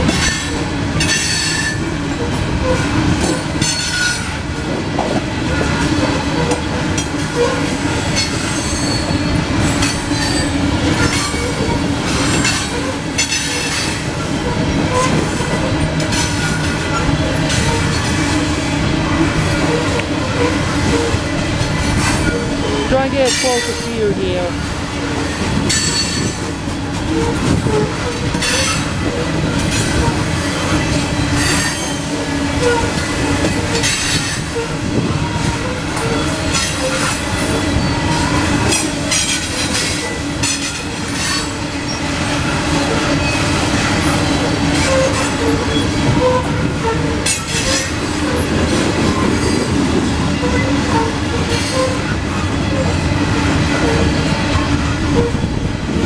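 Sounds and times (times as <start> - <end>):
freight train rumble: 0.0 - 56.0
wheels clacking over rail joints: 0.0 - 56.0.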